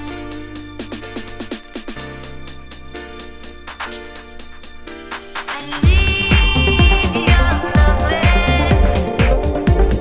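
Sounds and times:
electronic dance music: 0.0 - 10.0
high sliding synth melody: 5.8 - 9.2
kick drum thumping: 5.8 - 10.0.

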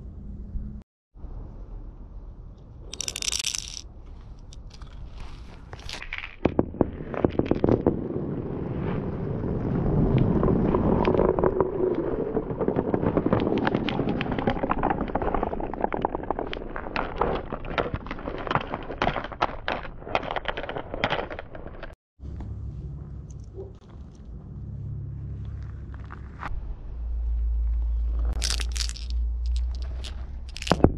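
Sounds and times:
marbles clicking and knocking: 2.9 - 5.0, 28.3 - 30.9
marbles rolling on wooden track: 2.9 - 5.0, 5.8 - 8.2, 10.2 - 22.0, 28.3 - 30.9.

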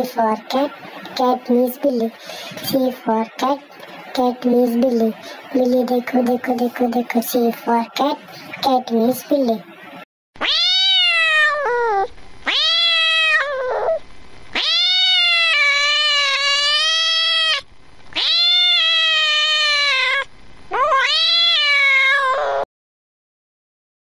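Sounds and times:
cat meowing: 10.4 - 14.0, 14.6 - 17.6, 18.2 - 22.7.

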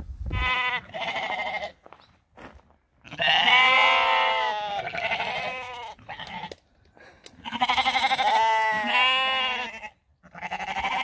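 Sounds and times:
sheep bleating: 0.4 - 1.8, 3.0 - 6.6, 7.4 - 11.0.

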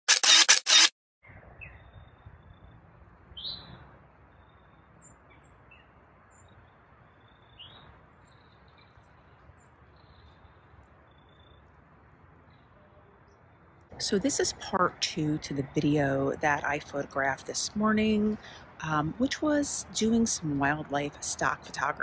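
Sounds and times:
loud bursts of noise: 0.1 - 0.9.

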